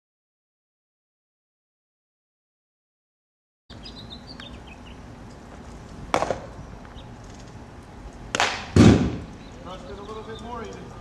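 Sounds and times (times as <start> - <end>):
baseball smacking into glove: 6.1 - 6.5, 8.3 - 9.3.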